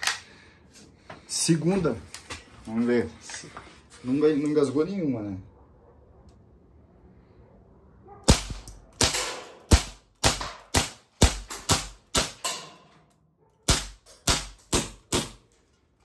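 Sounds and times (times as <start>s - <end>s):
air pistol shots: 8.2s - 12.8s, 13.6s - 15.5s.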